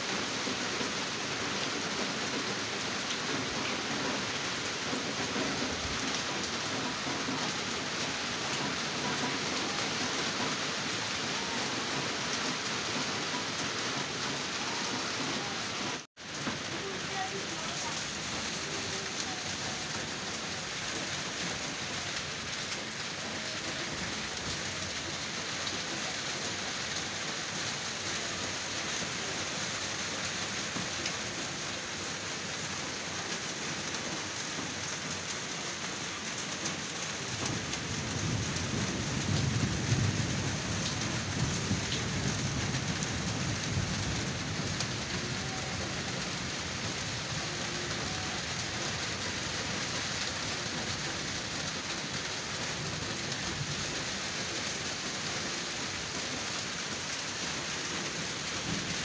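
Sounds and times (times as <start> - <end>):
heavy rain falling: 0.0 - 59.0
low rumble of thunder: 37.2 - 49.3.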